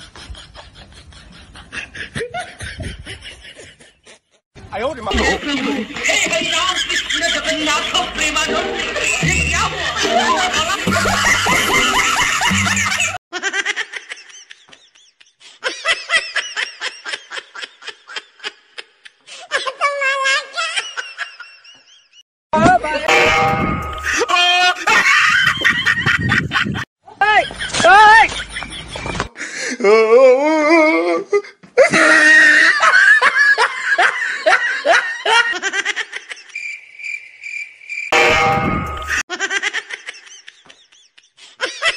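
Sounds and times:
hearty laughter: 0:00.0 - 0:04.4, 0:08.8 - 0:22.2, 0:24.0 - 0:30.2, 0:31.3 - 0:36.6, 0:39.1 - 0:41.9.

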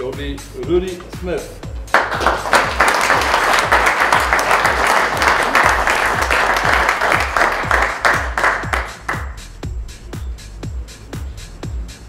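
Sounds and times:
music with steady beat: 0:00.0 - 0:12.0
audience applauding: 0:01.9 - 0:09.4.

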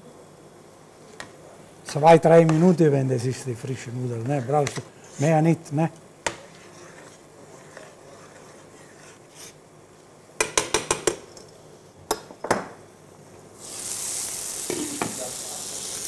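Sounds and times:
frying pan sizzling: 0:13.6 - 0:16.0.

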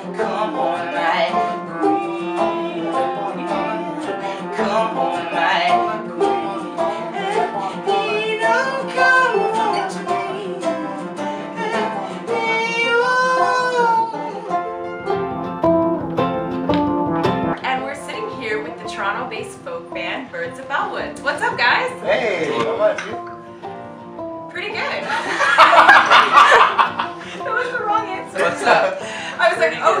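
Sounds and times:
person singing lead: 0:00.0 - 0:15.4
acoustic guitar: 0:00.0 - 0:30.0
banjo: 0:00.0 - 0:30.0
mandolin: 0:00.0 - 0:30.0
upright bass: 0:14.6 - 0:19.6.

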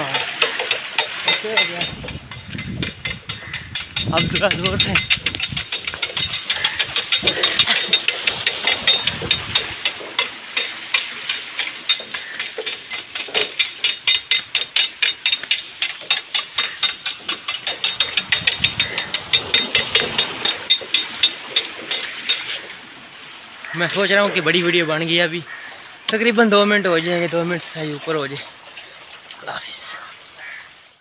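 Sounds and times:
water wheel ratchet clattering: 0:00.0 - 0:22.8.

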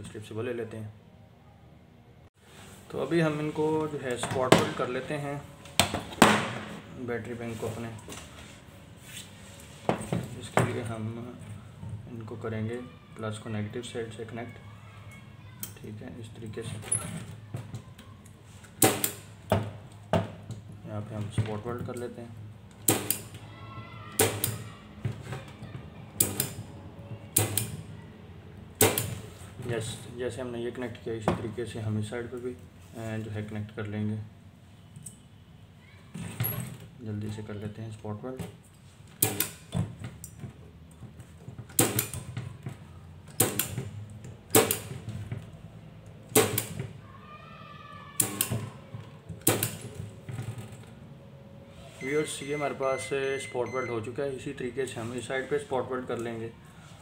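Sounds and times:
spot welder snapping: 0:18.8 - 0:19.3, 0:22.8 - 0:23.4, 0:26.2 - 0:26.6, 0:28.8 - 0:29.2, 0:39.2 - 0:39.6, 0:41.7 - 0:42.3, 0:43.3 - 0:43.8, 0:44.5 - 0:44.9, 0:46.3 - 0:46.8, 0:48.2 - 0:48.6, 0:49.4 - 0:49.8.

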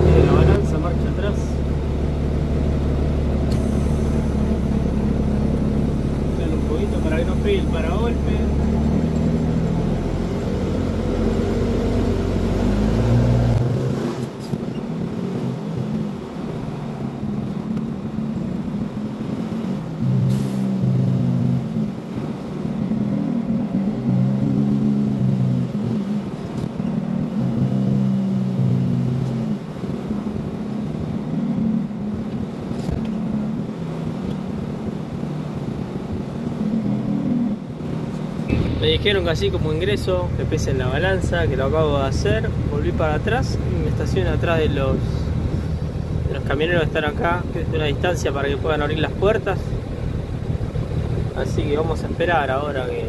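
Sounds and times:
truck diesel engine running: 0:00.0 - 0:14.1, 0:37.9 - 0:53.0.

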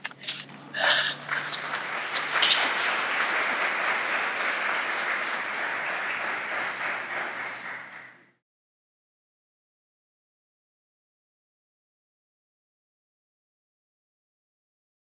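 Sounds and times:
congregation applauding: 0:00.3 - 0:08.4.

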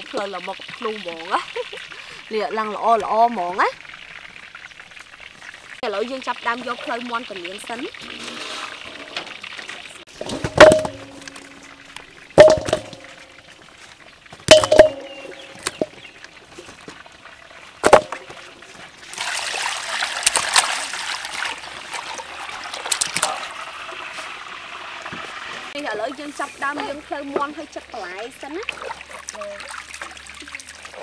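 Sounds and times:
metal bowl knocks ringing: 0:10.2 - 0:13.4, 0:14.5 - 0:16.0, 0:17.8 - 0:18.4
water pouring into bowl: 0:17.7 - 0:23.7.

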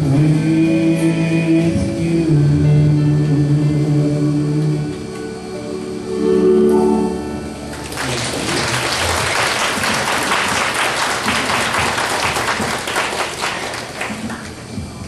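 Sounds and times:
live music final chord: 0:00.2 - 0:14.4
audience applause: 0:07.7 - 0:14.7.

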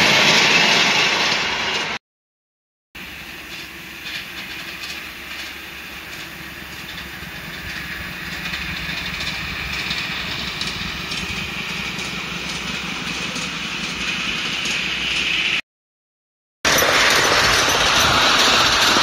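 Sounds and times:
miniature steam locomotive running: 0:00.0 - 0:02.0, 0:03.0 - 0:15.6, 0:16.7 - 0:19.0
wheels clicking on rails: 0:03.0 - 0:15.6, 0:16.7 - 0:19.0.

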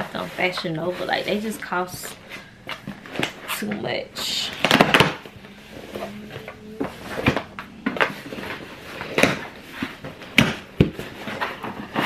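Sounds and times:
cardboard rubbing and scraping: 0:04.6 - 0:12.0.

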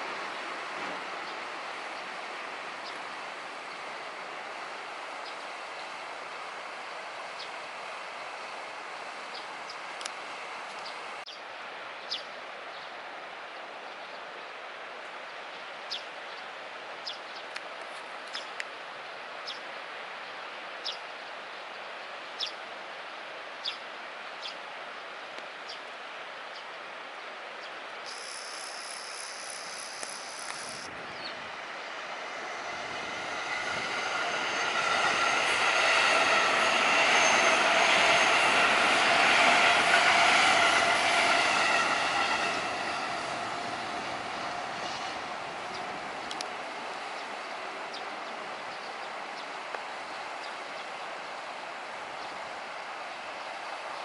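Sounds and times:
train whining tones: 0:28.1 - 0:46.2
electric train rumbling: 0:28.1 - 0:49.3.

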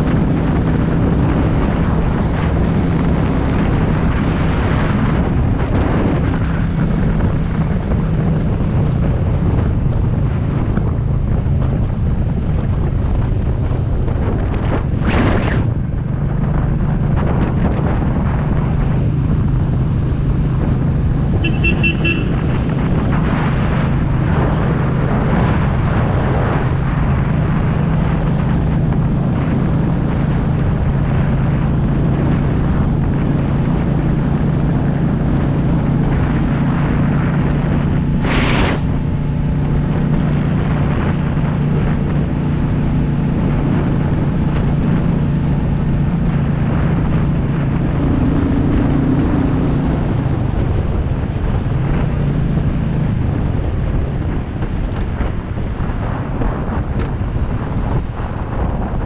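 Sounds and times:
motorcycle engine running: 0:00.0 - 0:59.0
wind rush on microphone: 0:00.0 - 0:59.0
brief whooshes: 0:38.2 - 0:39.0.

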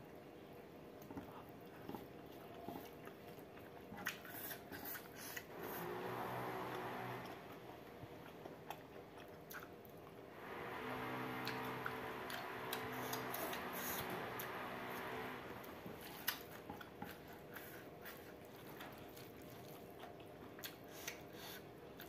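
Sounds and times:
steady humming: 0:10.3 - 0:17.2
person chewing and biting: 0:15.9 - 0:22.0.

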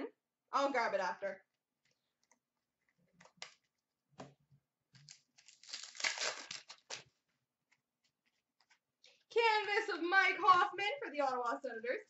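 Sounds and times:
card pack wrapper tearing and crinkling: 0:04.9 - 0:07.2.

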